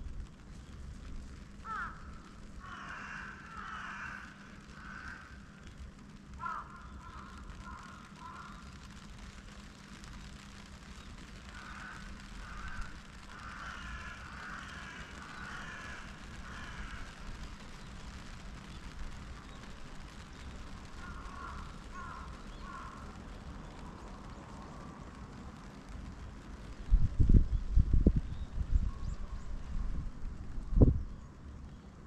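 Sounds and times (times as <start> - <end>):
distant city traffic hum: 0.0 - 32.0
crows cawing: 1.6 - 5.6, 6.4 - 8.8, 11.5 - 17.4, 20.9 - 23.2.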